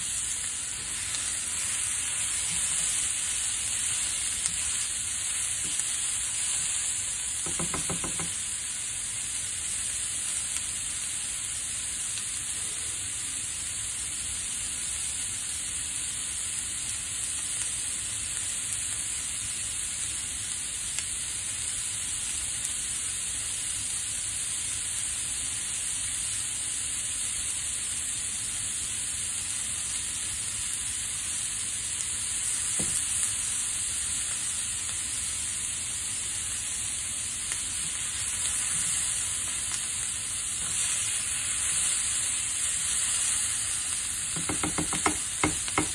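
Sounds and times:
spatula stirring in pan: 0.0 - 8.5, 37.8 - 45.9
sausage and onions sizzling: 0.0 - 45.9.

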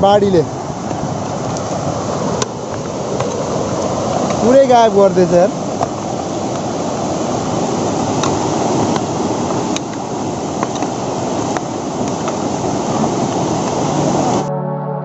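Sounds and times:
river rushing: 0.0 - 14.5.

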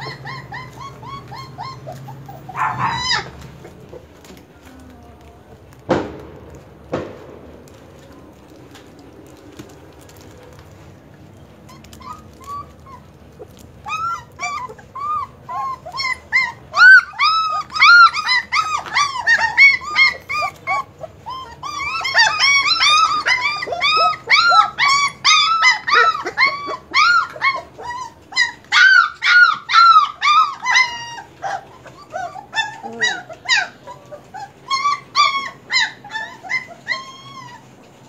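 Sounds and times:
puppies crying: 0.0 - 5.8, 7.9 - 38.0.

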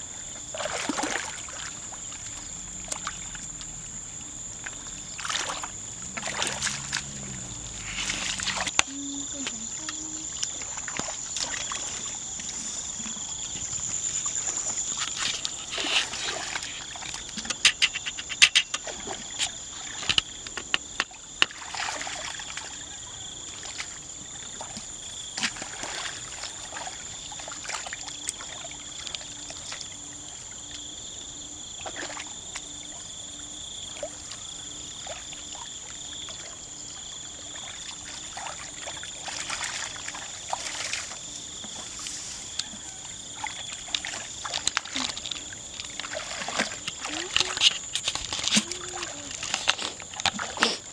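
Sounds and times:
hands splashing in muddy water: 0.5 - 2.0, 4.6 - 8.8, 15.0 - 22.8, 37.5 - 50.9.

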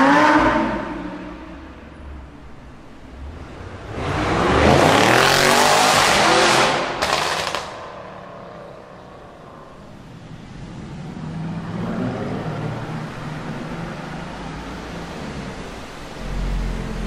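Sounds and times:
car engine approaching: 0.0 - 17.0
exhaust echoing in tunnel: 0.0 - 17.0
car engine revving: 3.0 - 9.2.

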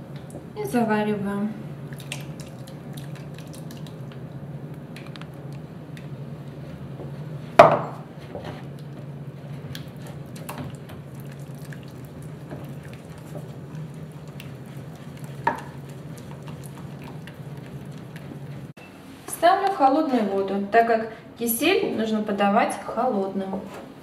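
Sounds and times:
wooden spoon scraping a pot: 11.8 - 18.7.

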